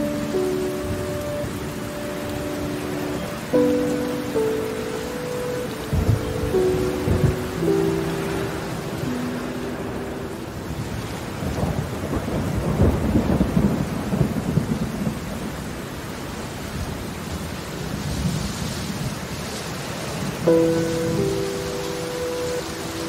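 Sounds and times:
background music: 0.0 - 10.8, 20.5 - 23.0
steady rain: 0.0 - 23.0
rolling thunder: 5.8 - 16.1.

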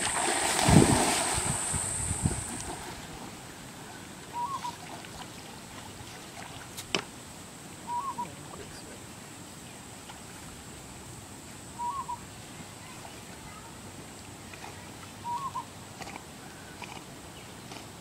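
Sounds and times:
bird calling: 3.9 - 4.9, 7.8 - 8.6, 11.8 - 12.3, 15.2 - 15.7.

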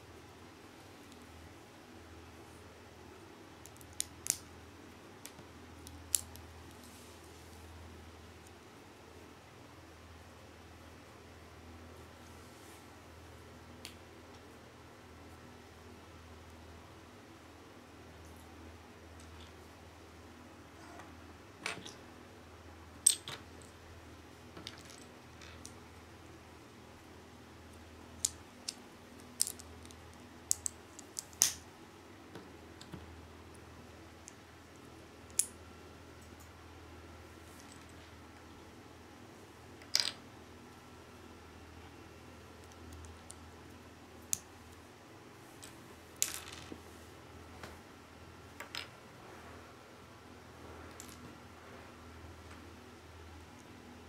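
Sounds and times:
plastic bricks clicking together: 28.2 - 31.6.

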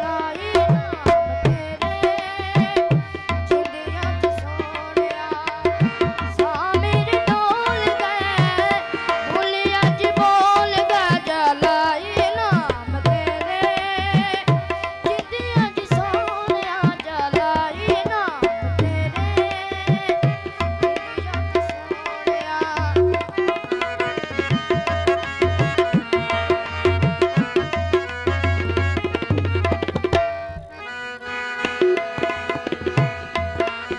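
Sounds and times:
tabla beating quick rhythm: 0.0 - 33.9.

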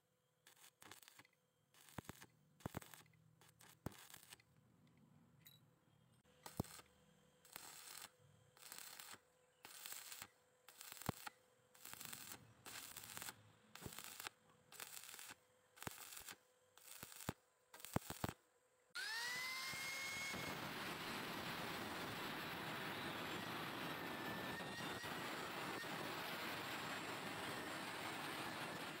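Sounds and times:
welding arc crackling and hissing: 0.5 - 4.4, 6.5 - 6.8, 7.4 - 18.4, 19.0 - 29.0
angle grinder whining: 19.0 - 29.0.

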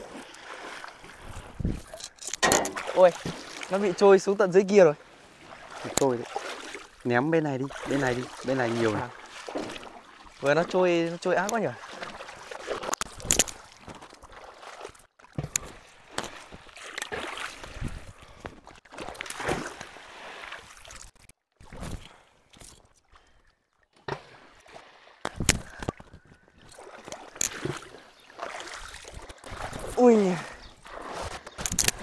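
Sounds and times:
sharp water splashes: 0.0 - 18.0, 18.8 - 22.8, 24.1 - 32.0
water sloshing in stream: 0.0 - 32.0.

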